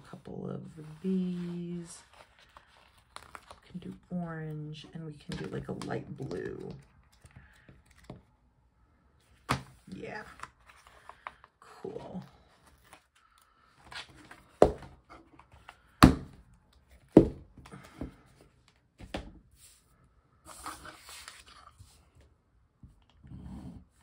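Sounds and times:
paper rustling: 0.6s - 4.0s, 20.5s - 22.1s
knocks and thuds on wooden desk: 17.1s - 17.4s.

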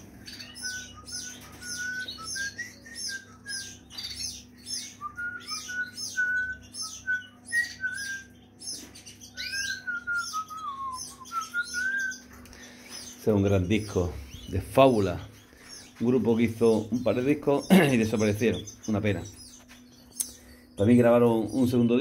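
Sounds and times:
canaries chirping: 0.0s - 22.0s.

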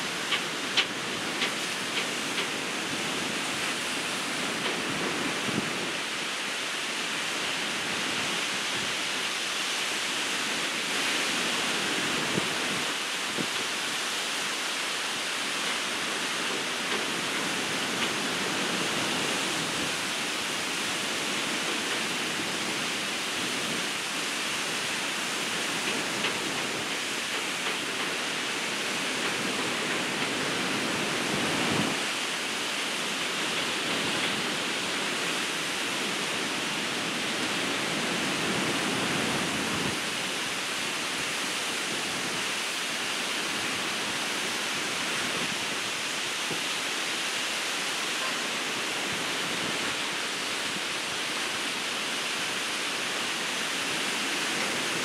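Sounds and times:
ocean surf breaking: 0.0s - 55.0s.

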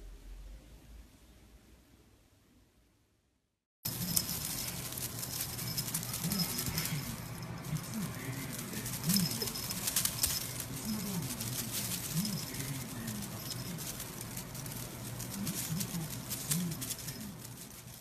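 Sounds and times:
tinsel rustling and crackling: 3.8s - 18.0s
collar bell jingling: 3.9s - 18.0s.

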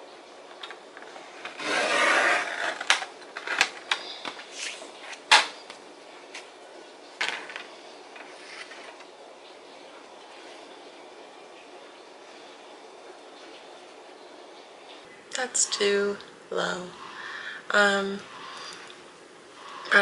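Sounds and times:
paper sliding and shuffling: 1.3s - 2.8s, 4.4s - 5.3s, 8.2s - 9.1s.

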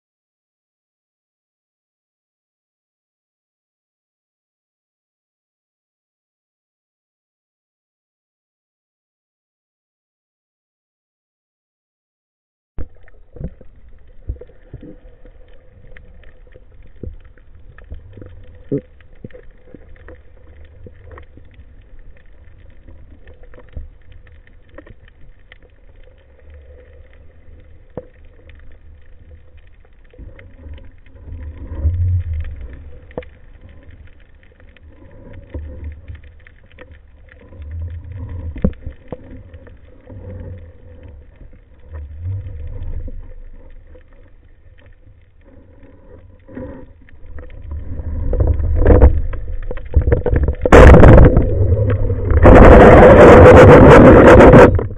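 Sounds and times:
sharp underwater clicks: 12.8s - 54.9s
underwater swell rumble: 12.8s - 54.9s.

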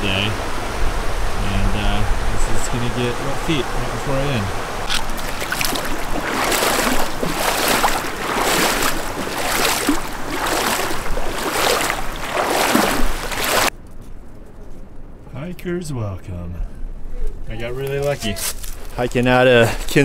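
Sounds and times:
stream rushing: 0.0s - 13.7s
boots splashing through creek: 4.8s - 13.7s.

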